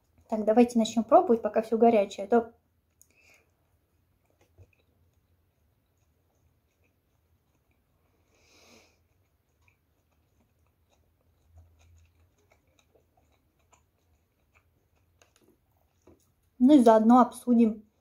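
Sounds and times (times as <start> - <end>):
mouth chewing clicks: 2.8 - 7.9, 9.0 - 16.6.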